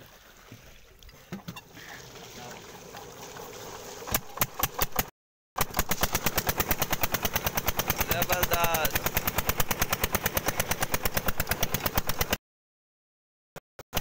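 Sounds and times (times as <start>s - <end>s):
diesel engine chugging: 5.6s - 12.4s.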